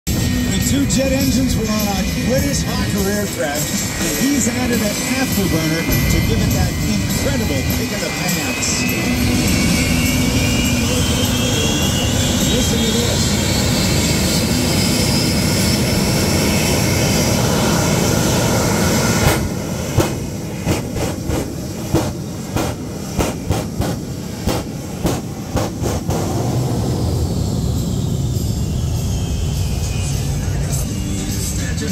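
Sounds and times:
jet engine roar and whine: 0.1s - 31.9s
sharp exhaust bangs: 19.2s - 27.2s.

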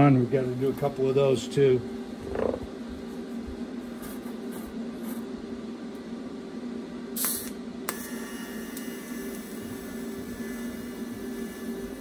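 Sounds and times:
steady low hum: 0.0s - 12.0s
welding arc hissing: 7.2s - 12.0s.

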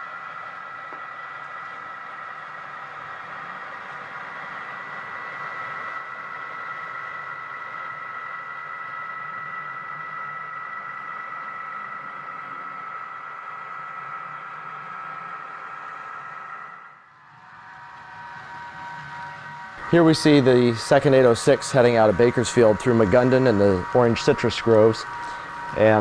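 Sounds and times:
model train running hum: 0.0s - 26.0s
steady high tones: 7.8s - 26.0s.

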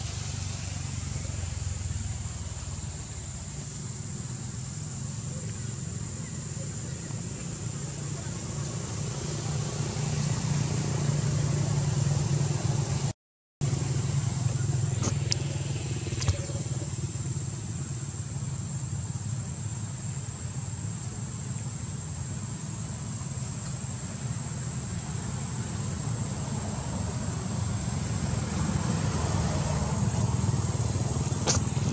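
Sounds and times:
distant traffic rumble: 0.0s - 31.9s.

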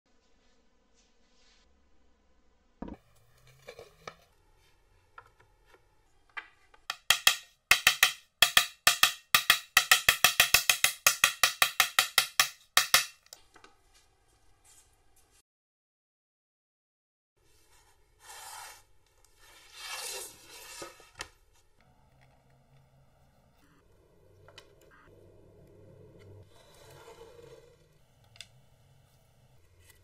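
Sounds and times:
hammer striking wooden block: 6.8s - 13.3s.

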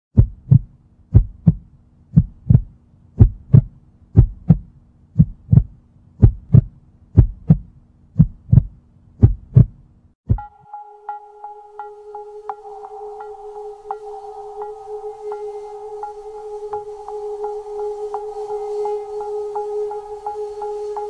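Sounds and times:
heartbeat thumps: 0.1s - 10.5s
held musical tone: 10.3s - 21.0s.

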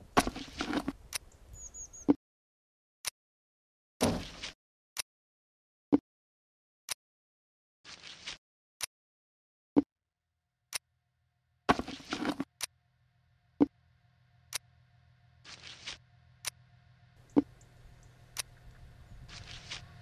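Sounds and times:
low hum: 11.7s - 20.0s.

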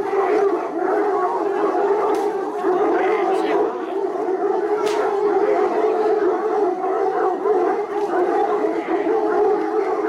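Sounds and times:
hounds baying and howling: 0.0s - 10.0s.

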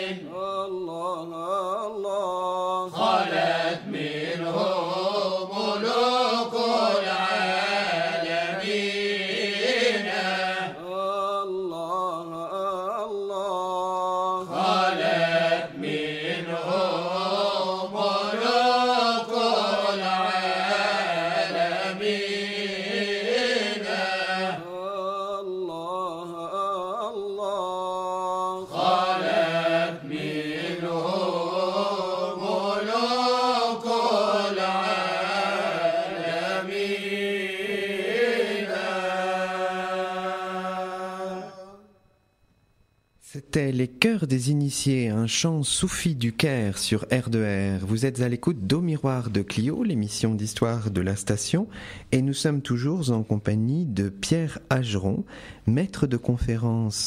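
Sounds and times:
voices chanting a melody: 0.0s - 41.9s.

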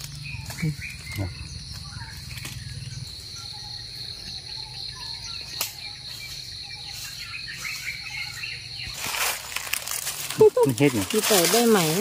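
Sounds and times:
faint bird chirps: 0.0s - 9.2s
insect drone: 0.0s - 12.0s.

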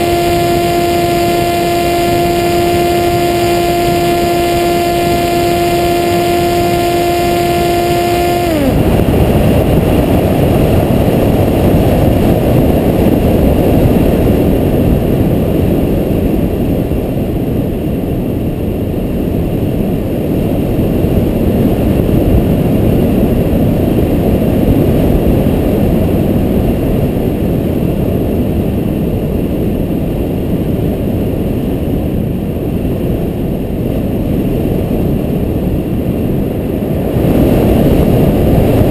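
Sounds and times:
electric motor and propeller whining: 0.0s - 10.2s
wind rushing on camera: 0.0s - 38.9s.

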